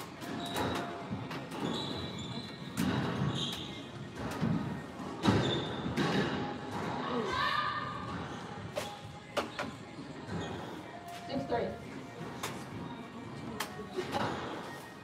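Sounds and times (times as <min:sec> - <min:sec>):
shoes squeaking on hardwood: 0:00.2 - 0:06.1.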